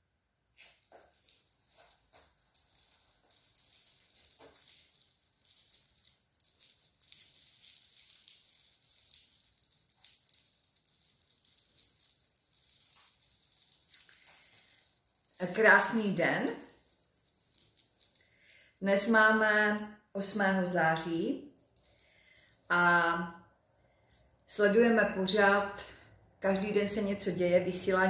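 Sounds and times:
stone bead necklaces rattling: 0.0 - 28.0.

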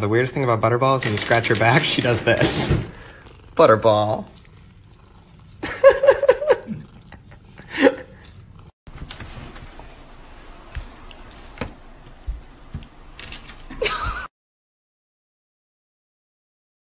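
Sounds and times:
rustling and scuffling: 8.9 - 14.2.

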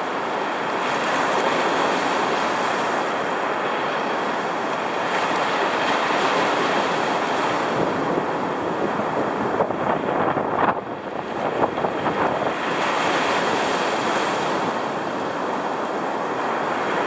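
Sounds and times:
surf waves roaring: 0.0 - 17.0
wind on microphone: 4.8 - 17.0.

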